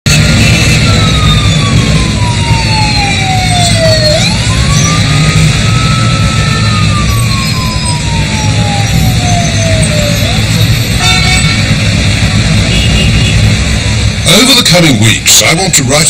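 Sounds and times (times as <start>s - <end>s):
siren wailing: 0.1s - 12.4s
low rumble of city traffic: 0.1s - 16.0s.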